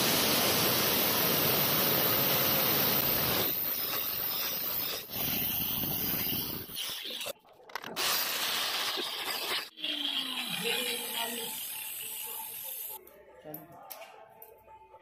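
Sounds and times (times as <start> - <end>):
grinder boring through marble: 8.0 - 12.4.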